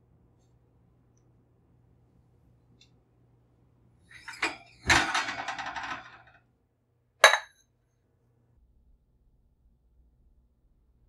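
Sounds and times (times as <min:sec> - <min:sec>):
metal tin clanking: 0:07.2 - 0:07.5.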